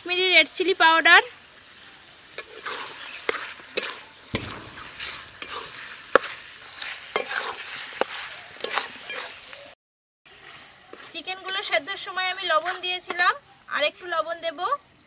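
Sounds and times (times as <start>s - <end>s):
chicken sizzling: 0.0s - 13.7s
metal spatula clinking on pan: 7.1s - 7.6s.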